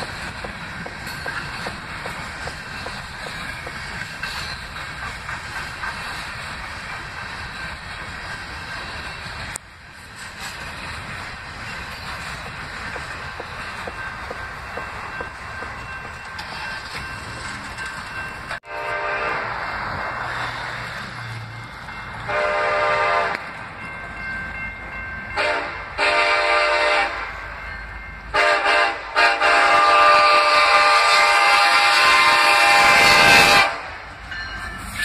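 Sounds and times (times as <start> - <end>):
locomotive air horn blasts: 18.6 - 19.6, 22.3 - 23.5, 25.4 - 27.4, 28.3 - 34.0.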